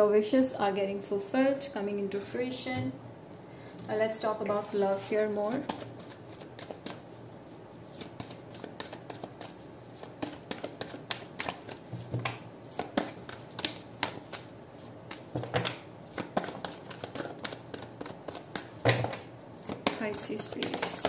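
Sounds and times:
cards being shuffled: 5.5s - 7.1s, 7.9s - 21.0s.

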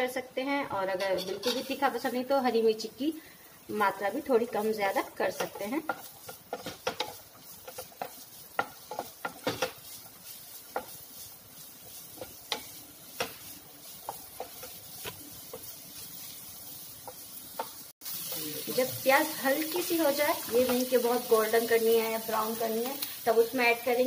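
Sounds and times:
onions sizzling: 0.0s - 24.0s
spatula tapping and scraping pan: 0.9s - 1.9s, 4.4s - 17.9s, 19.6s - 21.6s.

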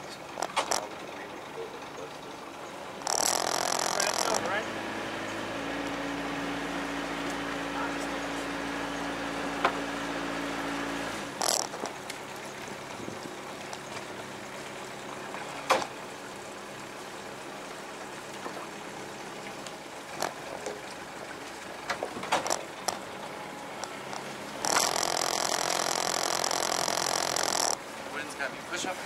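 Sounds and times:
boat engine humming: 0.0s - 29.0s
water washing: 0.0s - 29.0s
sharp knocks and clicks: 0.4s - 0.9s, 3.0s - 4.4s, 11.4s - 12.1s, 21.9s - 23.1s, 23.8s - 27.8s.

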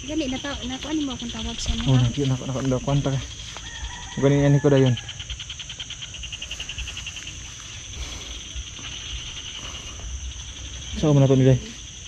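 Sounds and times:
insect pulsing trill: 0.0s - 12.0s
insects buzzing: 0.0s - 12.0s.

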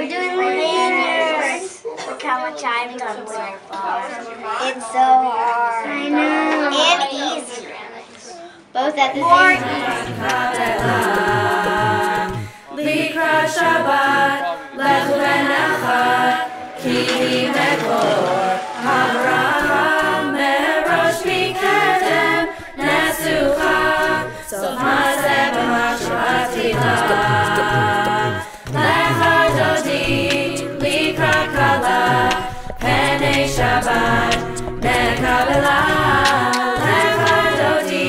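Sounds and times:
pulsing bass line: 9.2s - 12.5s, 16.9s - 37.7s
a cappella group singing: 9.2s - 38.0s.

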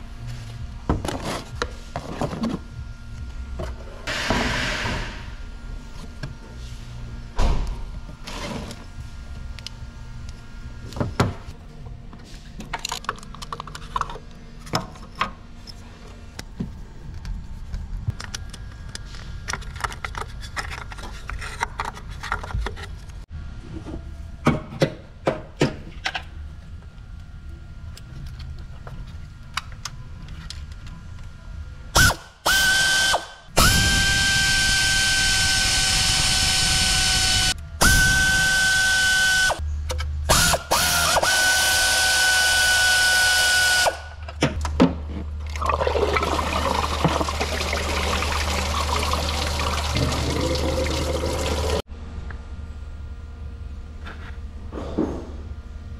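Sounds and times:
cordless power tool whining: 32.5s - 39.6s.

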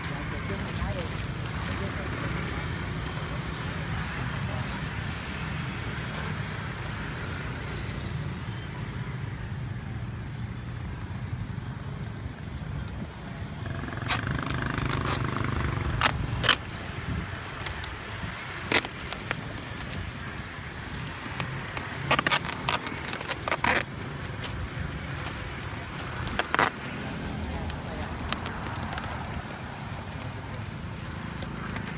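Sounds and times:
adhesive tape tearing: 14.0s - 20.2s, 20.9s - 31.9s.

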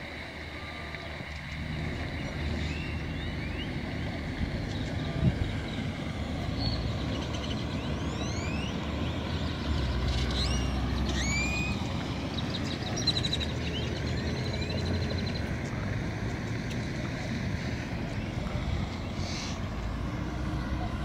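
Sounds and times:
birds calling: 1.8s - 15.5s.

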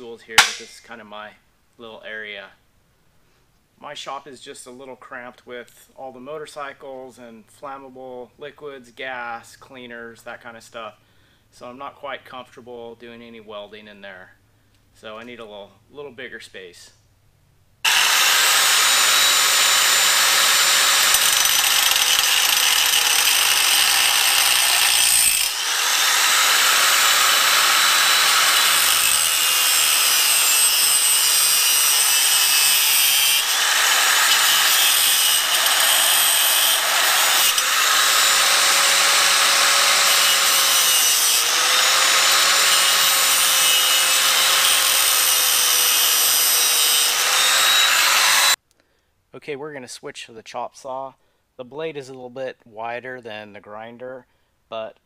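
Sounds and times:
angle grinder cutting steel: 0.4s - 0.8s, 17.9s - 48.6s.

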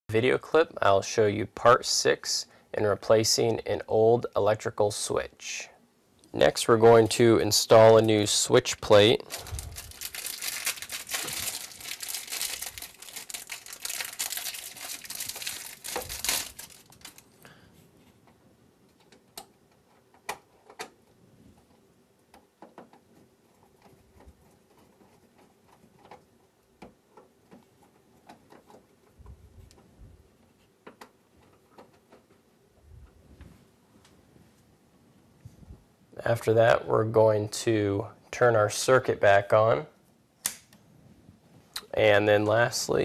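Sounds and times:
plastic packaging crinkling: 8.8s - 17.4s.

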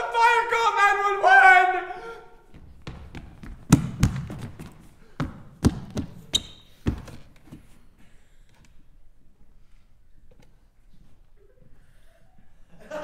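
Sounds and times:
running footsteps on wooden floor: 2.5s - 7.4s.

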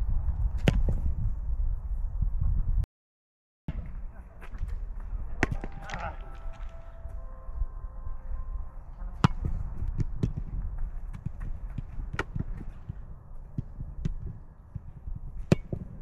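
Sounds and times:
wind rumble on microphone: 0.0s - 2.9s, 3.7s - 16.0s
footballs being kicked: 9.2s - 16.0s.

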